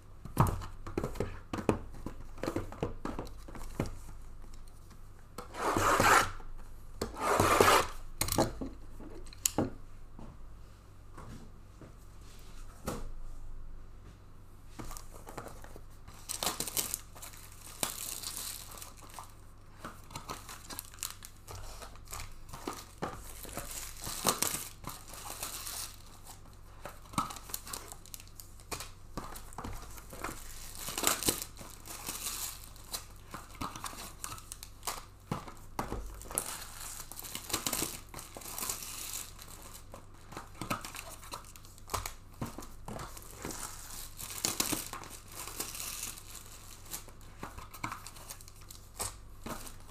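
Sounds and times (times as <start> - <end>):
box wrapping tearing: 7.2 - 8.0
paper packing filler crumpling: 36.0 - 49.9.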